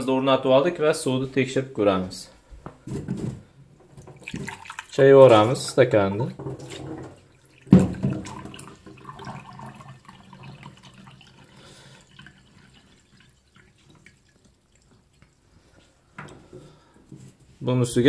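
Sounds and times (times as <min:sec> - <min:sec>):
water trickling into a glass: 0:04.2 - 0:05.0, 0:07.2 - 0:15.9.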